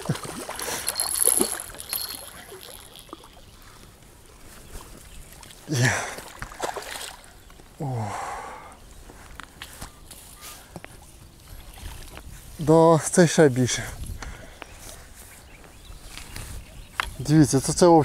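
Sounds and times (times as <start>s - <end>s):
fish splashing at water surface: 0.0s - 3.6s.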